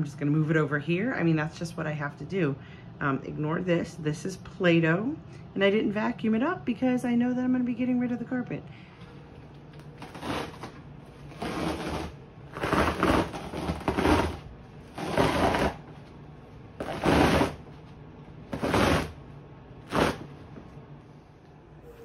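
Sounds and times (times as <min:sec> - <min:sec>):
carpet ripping and tearing: 0:10.0 - 0:15.9, 0:16.8 - 0:17.7, 0:18.5 - 0:19.2, 0:19.8 - 0:20.4.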